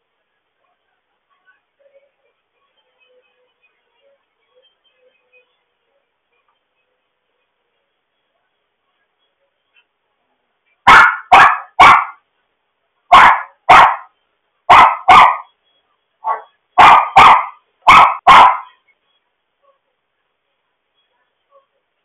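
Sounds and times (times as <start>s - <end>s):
dog barking: 10.9s - 12.2s, 13.1s - 14.1s, 14.7s - 15.5s, 16.2s - 18.8s.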